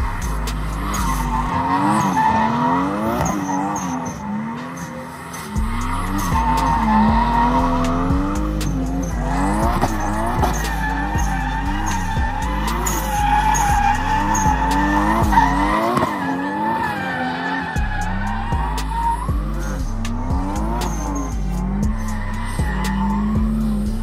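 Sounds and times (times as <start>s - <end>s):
car engine revving: 0.0s - 24.0s
tyres squealing: 0.0s - 24.0s.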